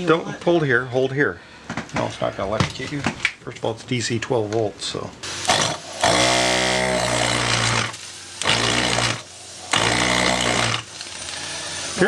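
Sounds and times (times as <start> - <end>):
pump motor whirring: 5.3 - 12.0.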